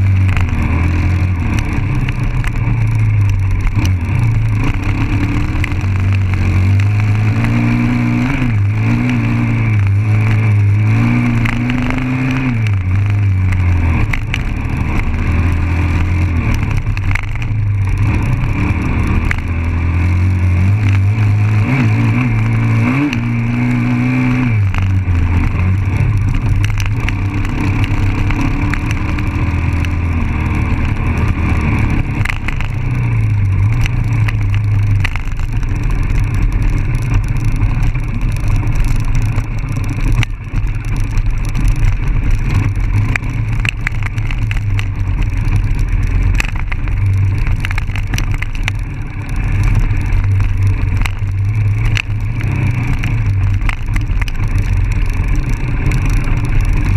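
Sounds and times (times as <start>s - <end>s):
dirt bike engine revving: 0.0s - 40.2s.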